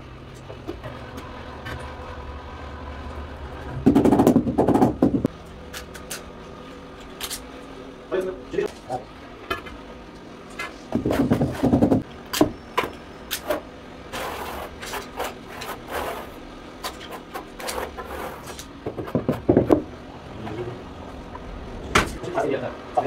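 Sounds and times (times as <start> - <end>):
tile knocking and scraping: 18.8 - 19.8.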